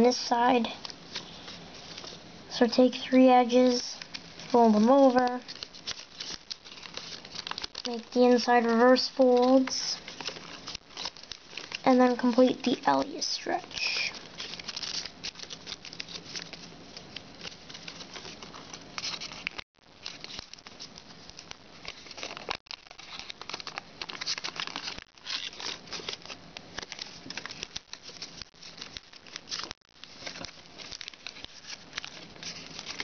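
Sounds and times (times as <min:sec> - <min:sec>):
foil paper crinkling: 0:03.4 - 0:33.0.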